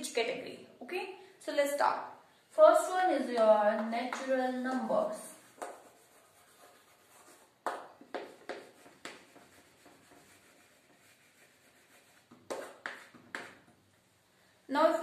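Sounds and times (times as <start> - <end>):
chalk taps and scrapes: 3.3 - 14.0
chalk scratching on blackboard: 5.0 - 13.8.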